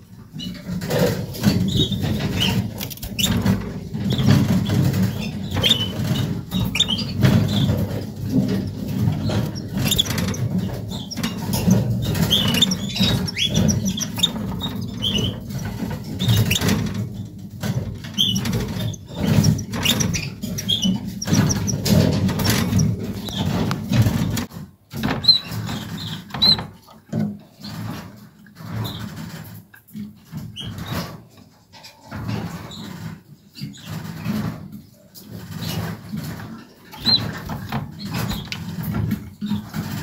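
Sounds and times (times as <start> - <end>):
canaries chirping: 0.4 - 17.0, 17.6 - 24.4, 35.5 - 40.0.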